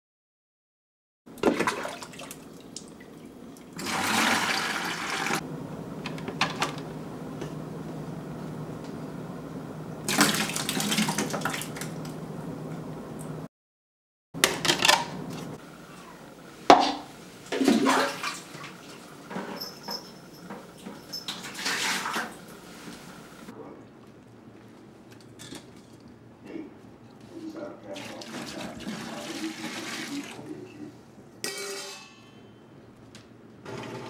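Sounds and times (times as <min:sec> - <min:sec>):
water dispensing rush: 0:01.3 - 0:05.4, 0:10.0 - 0:12.3, 0:15.2 - 0:23.5, 0:27.9 - 0:30.6
water splashing into bucket: 0:01.3 - 0:05.4, 0:10.0 - 0:12.1, 0:16.7 - 0:19.0, 0:21.2 - 0:22.4, 0:28.0 - 0:30.4
refrigerator dispenser hum: 0:14.4 - 0:17.9.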